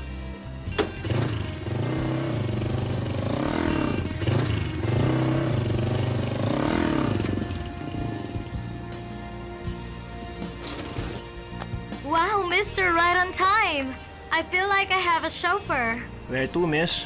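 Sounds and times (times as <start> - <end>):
motorcycle engine revving: 0.7 - 9.0.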